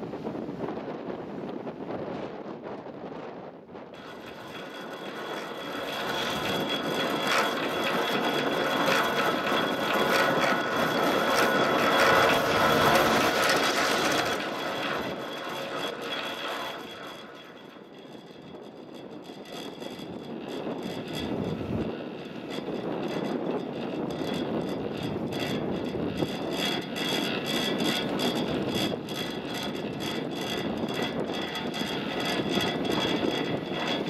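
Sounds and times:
gondola lift mechanical rumble: 0.0 - 34.0
rapid clicking of sheave wheels: 4.0 - 34.0.

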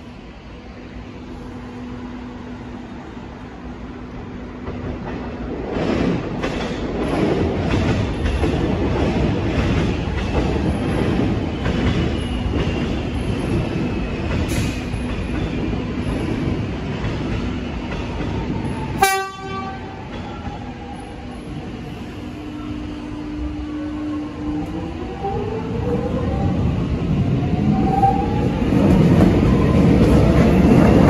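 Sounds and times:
train wheels rumbling on rails: 0.0 - 31.0
train horn toot: 19.0 - 20.0.

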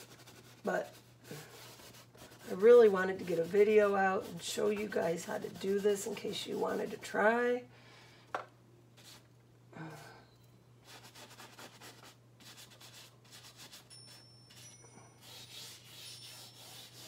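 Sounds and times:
paintbrush scrubbing canvas: 0.0 - 7.1, 9.0 - 9.2, 10.8 - 14.6, 15.2 - 17.0.

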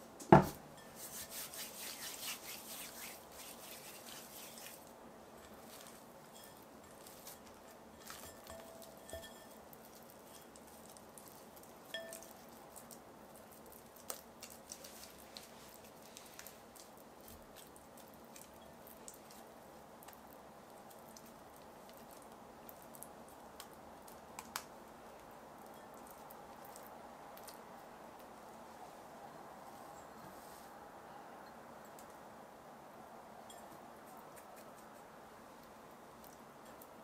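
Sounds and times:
dough squishing by hand: 0.4 - 28.3.

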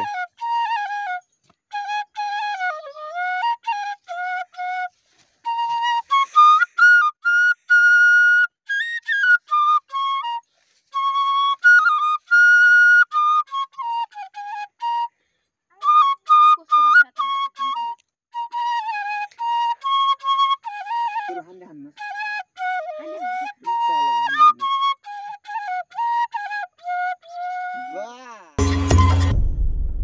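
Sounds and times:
flute melody: 0.0 - 29.4
flute player breathing: 4.8 - 8.3, 10.4 - 11.0, 14.8 - 15.7.

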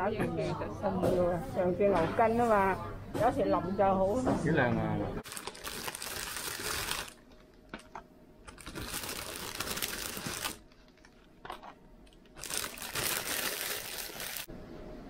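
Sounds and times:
plastic wrapping crinkling: 5.2 - 7.9, 8.5 - 14.5.

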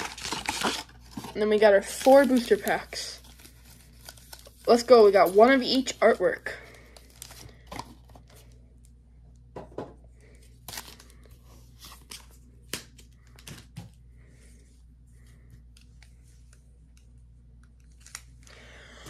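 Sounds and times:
foil wrappers crinkling: 0.0 - 8.6, 10.3 - 13.6.

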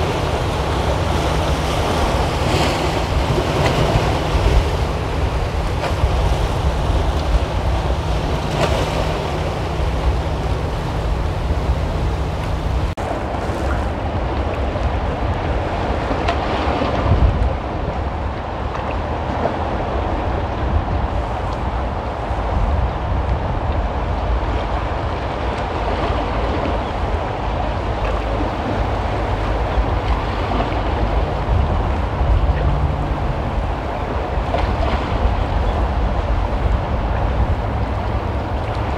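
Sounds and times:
sea water splashing on boulders: 0.0 - 20.5
waves breaking among rocks: 0.0 - 38.9
wind buffeting microphone: 0.0 - 38.9.

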